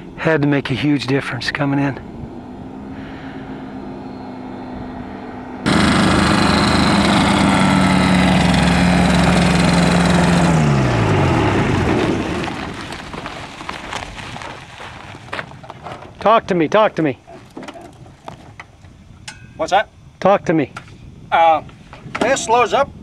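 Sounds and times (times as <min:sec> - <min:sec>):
propeller winding down: 0:00.0 - 0:16.2
ultralight engine and propeller idling: 0:00.0 - 0:16.3, 0:17.1 - 0:20.2.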